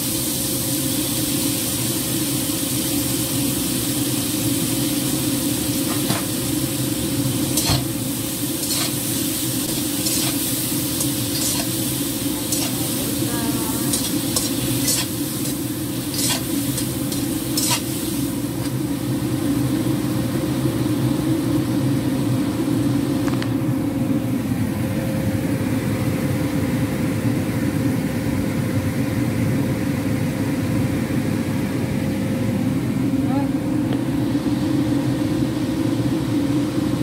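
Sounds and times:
sausage frying in oil: 0.0s - 23.4s.

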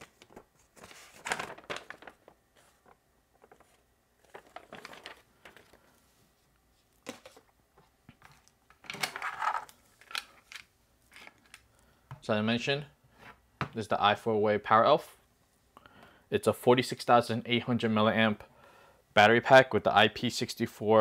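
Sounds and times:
cord strap and cables handled: 0.0s - 5.8s, 6.8s - 11.7s
paper leaflet rustling: 0.0s - 10.6s.

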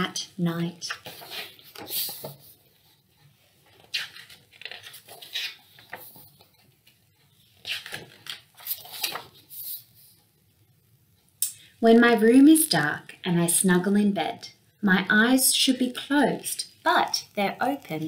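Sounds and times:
book pages turning: 0.8s - 10.2s.

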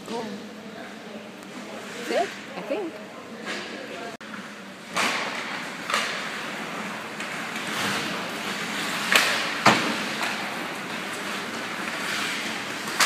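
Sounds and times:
hockey sticks and puck clacking: 4.3s - 13.0s.

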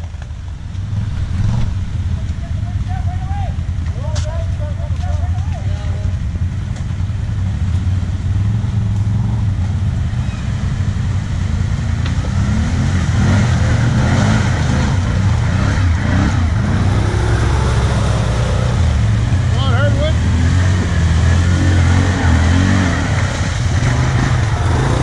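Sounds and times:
atv engine idling: 0.0s - 12.4s, 15.0s - 20.2s
atv engine revving through water: 7.9s - 25.0s.

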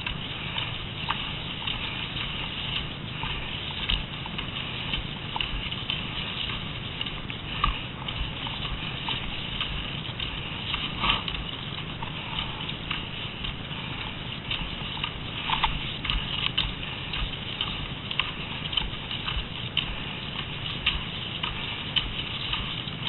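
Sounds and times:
low rumble: 0.0s - 23.0s
skis sliding over packed snow: 0.0s - 23.0s.

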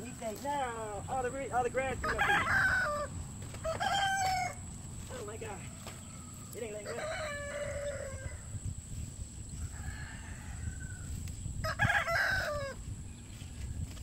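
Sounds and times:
rooster crowing: 2.0s - 4.6s, 5.5s - 8.6s, 9.5s - 12.8s.

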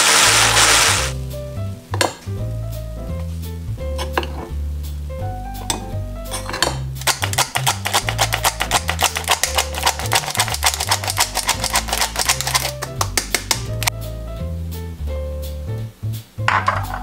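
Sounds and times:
background music with bass: 0.0s - 17.0s
spoon knocking sifter rim: 6.4s - 13.9s
flour sifter handle clicking: 7.0s - 13.7s.

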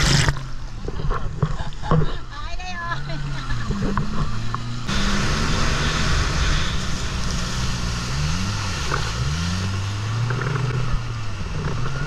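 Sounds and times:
jet ski engine running: 0.0s - 12.0s
rush of wind and spray: 4.0s - 12.0s.

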